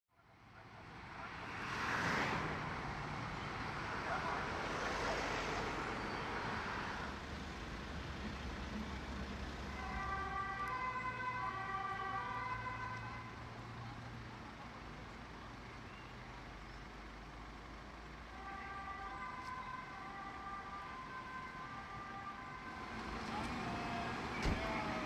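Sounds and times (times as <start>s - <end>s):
low engine rumble: 6.2s - 25.0s
two-tone siren: 9.7s - 13.4s, 18.4s - 25.0s.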